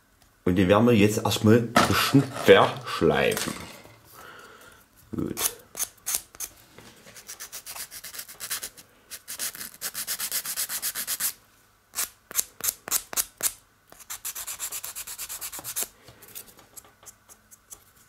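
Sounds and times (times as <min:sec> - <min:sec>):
sanding stick strokes: 0:07.2 - 0:11.4, 0:14.0 - 0:15.9.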